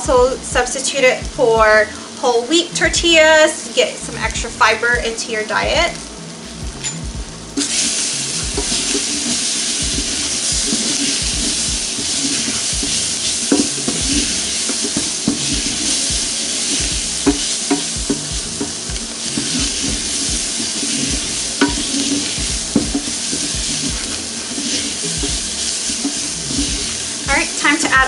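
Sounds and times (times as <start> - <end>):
onions sizzling in a saucepan: 0.0 - 28.0
wooden spoon knocking on pan: 8.5 - 26.9.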